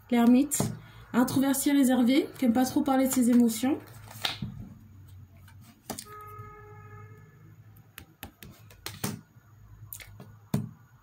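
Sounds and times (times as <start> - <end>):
cards clicking and tapping: 3.0 - 4.6, 7.9 - 9.2.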